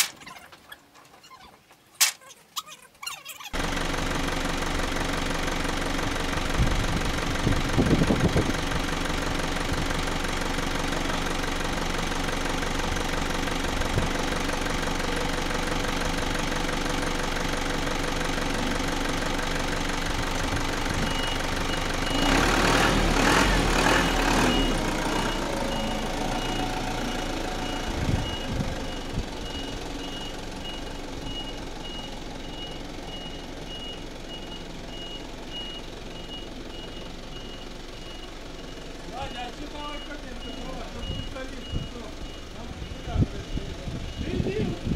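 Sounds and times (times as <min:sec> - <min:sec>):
truck engine idling and revving: 0:03.4 - 0:44.9
reversing alarm beeping: 0:24.4 - 0:38.8, 0:39.8 - 0:44.7.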